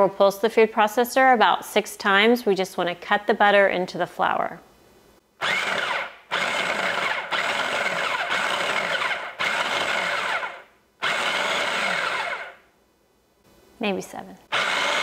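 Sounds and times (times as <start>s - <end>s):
food processor pulsing: 5.4s - 12.6s, 14.5s - 15.0s.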